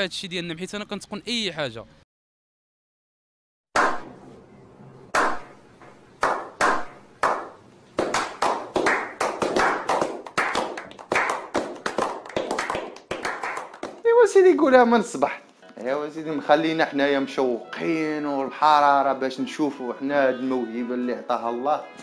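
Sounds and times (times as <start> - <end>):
group clapping: 6.2 - 14.2.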